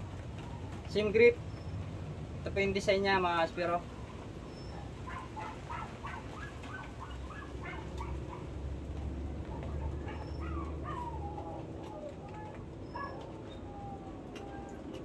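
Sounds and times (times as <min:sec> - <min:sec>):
dog whining and yelping: 0:04.4 - 0:08.6, 0:09.4 - 0:15.0.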